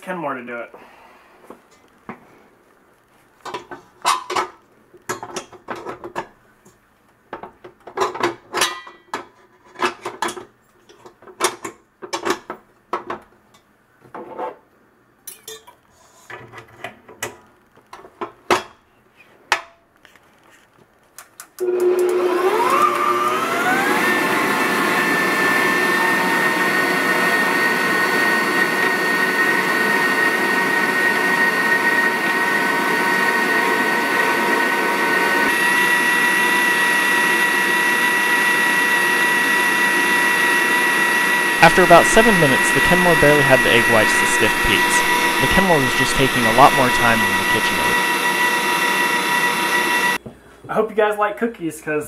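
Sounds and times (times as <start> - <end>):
stand mixer motor whining: 21.6 - 50.2.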